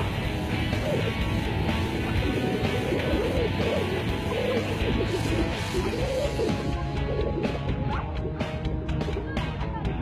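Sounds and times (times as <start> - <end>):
background music with a beat: 0.0 - 10.0.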